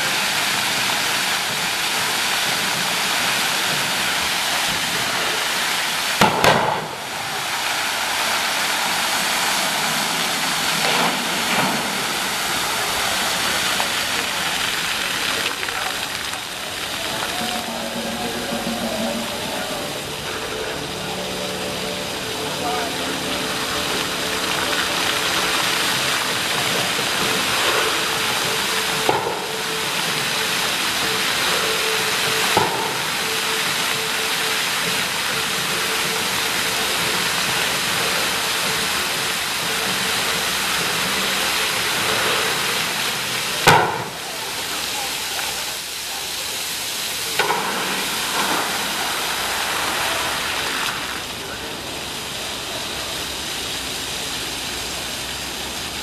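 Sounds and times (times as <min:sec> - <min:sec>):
fountain water splashing: 0:00.0 - 0:56.0
water jet thumps: 0:06.2 - 0:07.2, 0:25.6 - 0:31.2, 0:32.0 - 0:34.2, 0:34.8 - 0:44.4.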